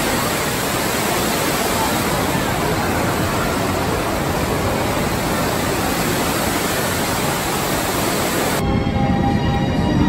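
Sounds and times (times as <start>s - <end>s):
water pouring into pool: 0.0s - 8.6s.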